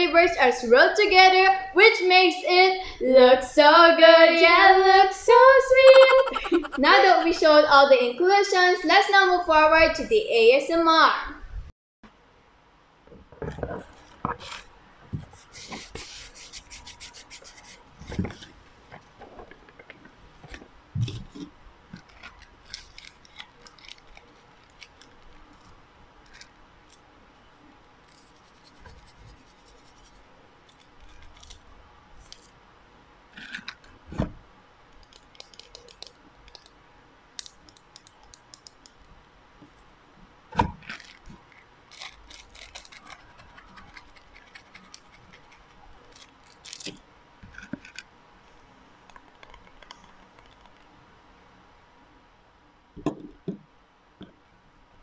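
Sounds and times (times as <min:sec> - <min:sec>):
plastic bags crinkling: 0:22.0 - 0:25.7, 0:40.8 - 0:47.0.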